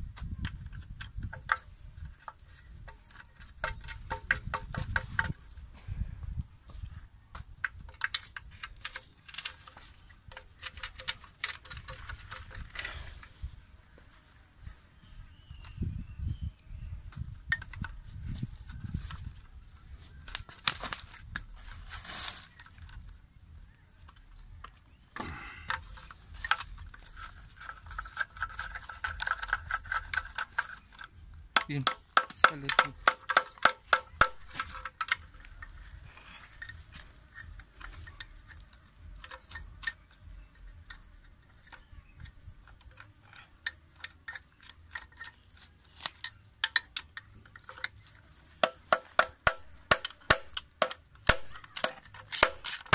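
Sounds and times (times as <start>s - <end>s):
ratchet wrench clicking: 48.6s - 52.9s.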